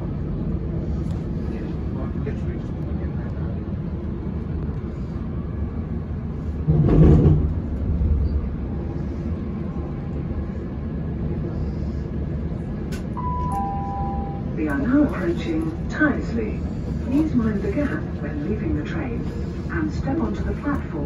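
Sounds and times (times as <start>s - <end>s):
train running rumble: 0.0s - 21.0s
two-note chime: 13.2s - 14.4s.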